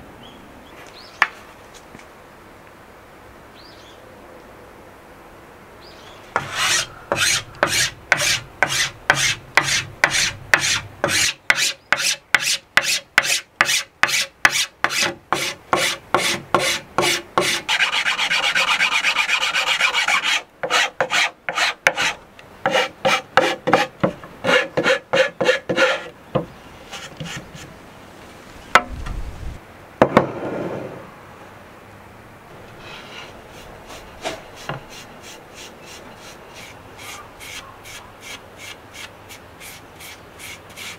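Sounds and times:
hand file rasping wood: 6.4s - 26.1s, 32.8s - 40.9s
steel wool rubbing wood: 6.4s - 26.1s, 32.8s - 40.9s.

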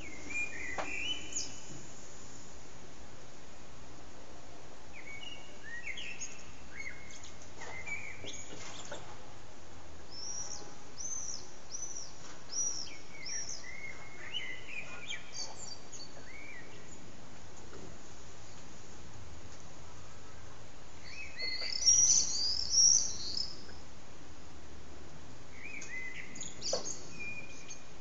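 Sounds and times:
blackbird singing: 0.0s - 1.7s, 4.9s - 9.0s, 10.1s - 17.1s, 21.0s - 23.8s, 25.5s - 28.0s
background hiss: 0.0s - 28.0s.

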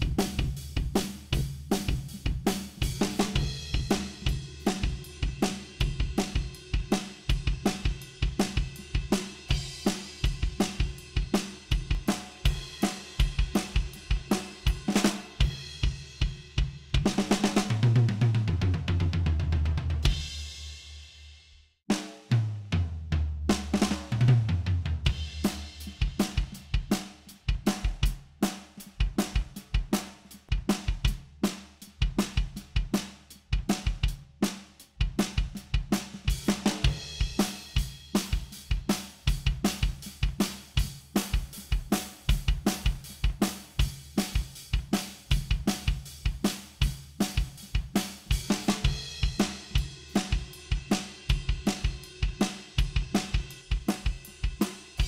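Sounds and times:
kick snare and hi-hat groove: 0.0s - 21.3s, 21.9s - 55.0s
cymbals: 2.8s - 17.7s, 36.4s - 42.8s, 43.4s - 55.0s.

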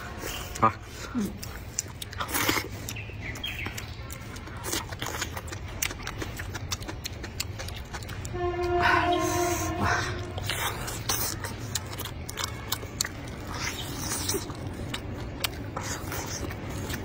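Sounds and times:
slurping and chewing noodles: 0.0s - 17.0s
hummed tone: 8.3s - 10.8s.

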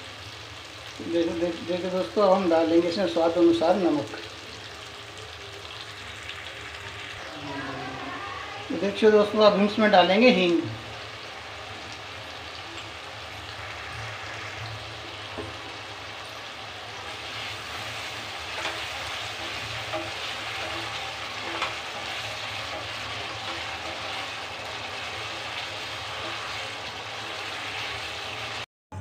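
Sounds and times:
masala sizzling in oil: 0.0s - 28.7s
wooden spatula stirring: 17.1s - 28.6s.

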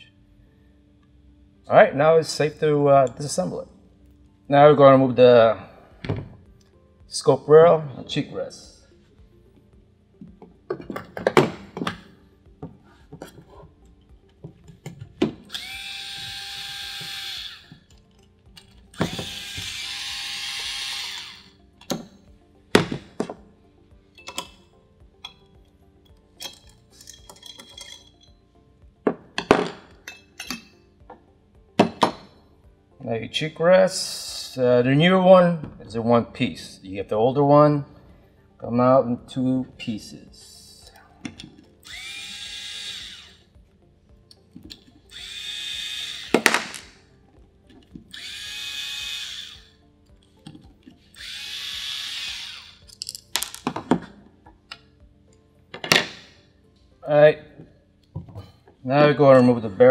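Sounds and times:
electric drill driver spinning: 15.3s - 22.1s, 41.8s - 43.5s, 44.7s - 47.0s, 47.8s - 49.8s, 50.5s - 53.7s
small metal parts clinking: 25.2s - 28.4s, 52.8s - 53.8s
metal parts knocking: 26.4s - 28.3s
metal parts scraping: 26.4s - 28.3s, 52.9s - 53.7s
knocks of parts on bench: 29.1s - 29.9s, 31.8s - 32.3s.

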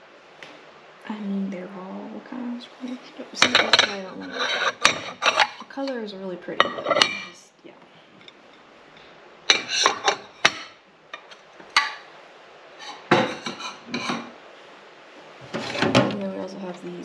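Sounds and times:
ceramic plates clattering: 2.8s - 7.4s, 9.5s - 12.1s, 12.8s - 14.4s, 15.4s - 16.3s.

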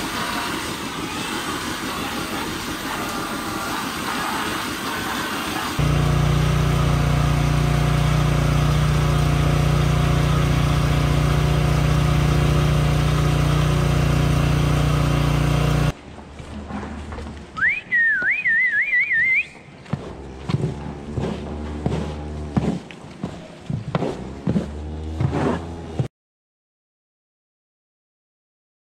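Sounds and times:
feeding cart motor humming: 0.0s - 16.0s, 19.8s - 23.2s, 23.9s - 26.1s
person whistling a tune: 17.6s - 19.6s.

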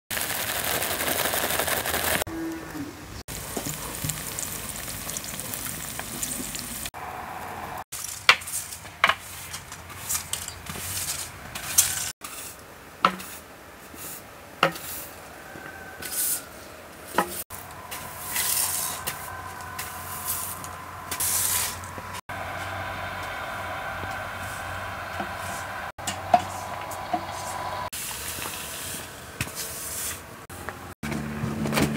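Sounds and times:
eggs sizzling in a frying pan: 0.1s - 2.3s, 3.3s - 6.9s
broom sweeping leaves on tiles: 0.2s - 2.2s, 7.9s - 15.2s, 16.0s - 16.5s, 17.1s - 22.8s, 23.6s - 30.4s
metal spoon scraping a pan: 8.0s - 15.2s, 16.0s - 16.5s, 17.1s - 21.9s.

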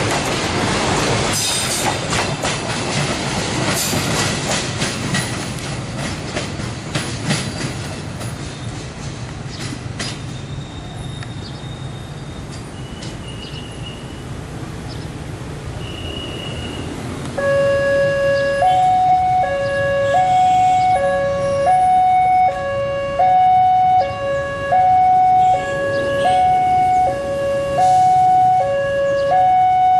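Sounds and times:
train rumbling: 0.0s - 29.9s
two-tone siren: 17.4s - 29.9s.

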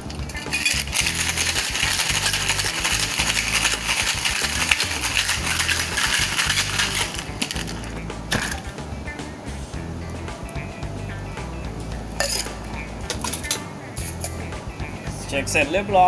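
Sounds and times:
ice rattling in metal shaker: 0.0s - 8.7s.

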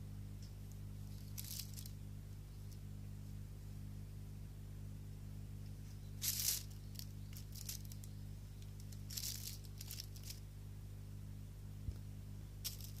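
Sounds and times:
steady low hum: 0.0s - 13.0s
plastic bag rustling and crinkling: 6.2s - 8.1s, 8.8s - 10.4s, 12.6s - 13.0s.

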